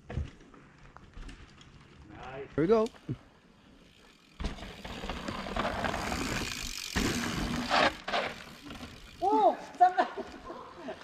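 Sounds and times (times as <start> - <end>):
bike rattling: 0.0 - 10.5.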